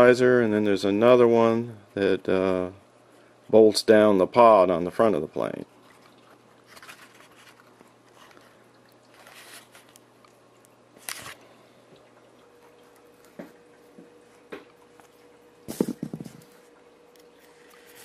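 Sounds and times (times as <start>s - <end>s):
faint steady hum: 0.0s - 18.0s
soft knocks: 15.7s - 16.5s.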